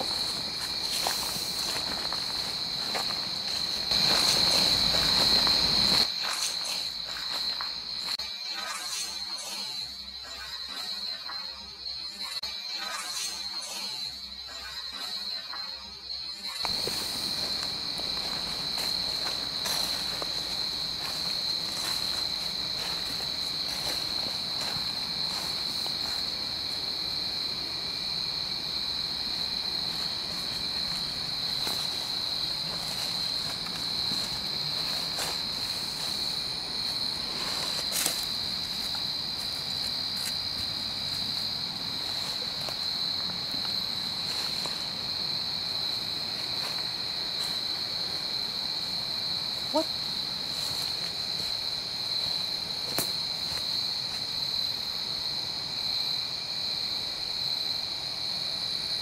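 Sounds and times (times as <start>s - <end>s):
footsteps on dry leaves: 0.0s - 9.1s, 16.6s - 26.9s, 29.0s - 48.4s, 50.2s - 54.2s
crickets chirping: 0.0s - 59.0s.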